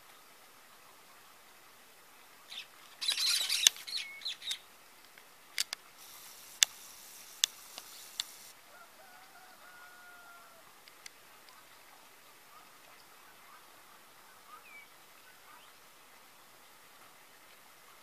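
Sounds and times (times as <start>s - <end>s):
sharp clicks: 3.0s - 3.9s, 5.6s - 8.5s
parakeets screeching: 3.0s - 4.6s.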